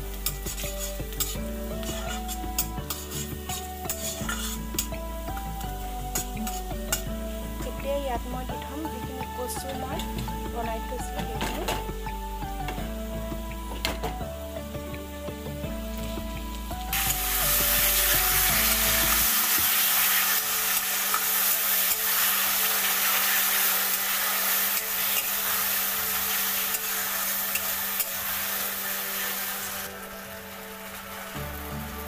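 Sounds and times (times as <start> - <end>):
leaves sizzling in hot oil: 0.0 - 32.0
metal spatula stirring: 0.2 - 4.9, 6.1 - 7.0.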